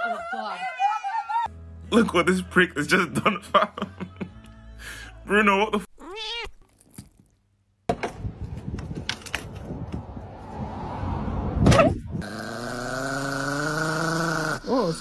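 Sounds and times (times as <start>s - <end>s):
small dog growling: 12.2s - 15.0s.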